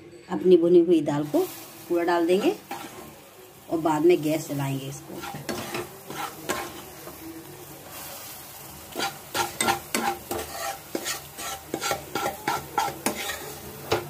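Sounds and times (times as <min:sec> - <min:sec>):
spoon clinking and scraping pan: 0:02.3 - 0:03.1, 0:05.1 - 0:06.9, 0:08.9 - 0:14.0.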